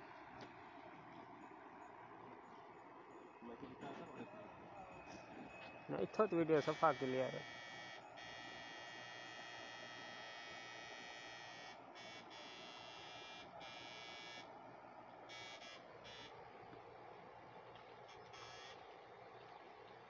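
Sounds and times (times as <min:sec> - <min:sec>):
high electronic buzz: 0:06.6 - 0:14.5, 0:15.3 - 0:16.4, 0:18.1 - 0:18.8.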